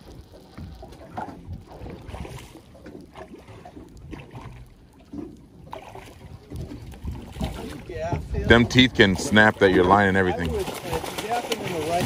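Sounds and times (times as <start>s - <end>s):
water sloshing: 0.0s - 12.0s
fish splashing at surface: 10.4s - 12.0s.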